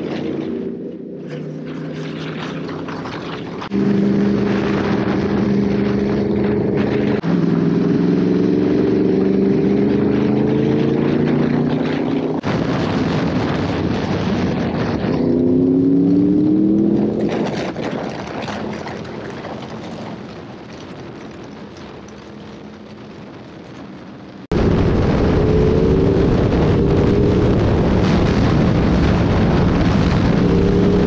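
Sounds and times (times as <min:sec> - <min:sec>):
motorcycle engine accelerating: 0:00.0 - 0:12.8, 0:13.6 - 0:17.7, 0:24.5 - 0:31.0
wind rushing: 0:24.4 - 0:31.0.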